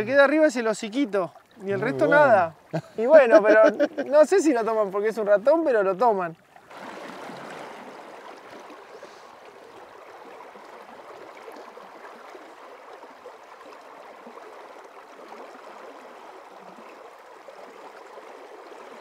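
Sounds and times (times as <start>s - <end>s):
river current rushing: 0.0s - 4.7s, 6.7s - 9.7s.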